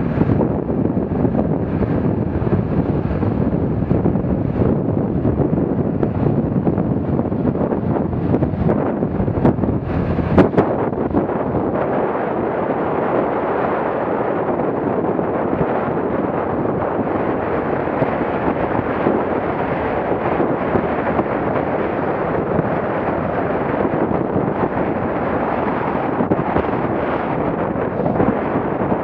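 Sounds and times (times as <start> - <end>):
wind buffeting microphone: 0.0 - 29.0
water splashing along boat hull: 5.8 - 11.8.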